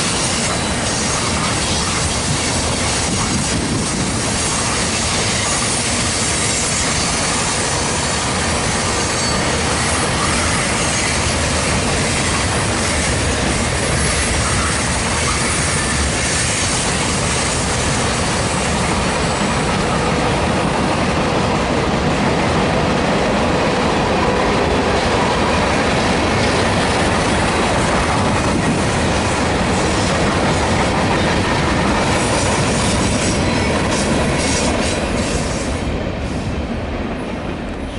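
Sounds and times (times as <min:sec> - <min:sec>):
freight train rumbling past: 0:00.0 - 0:37.9.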